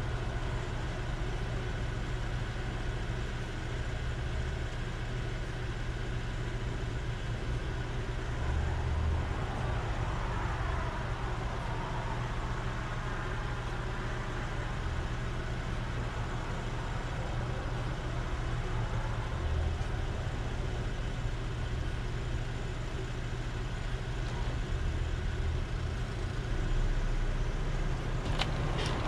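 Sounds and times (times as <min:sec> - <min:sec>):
car engine idling: 0:00.0 - 0:29.0.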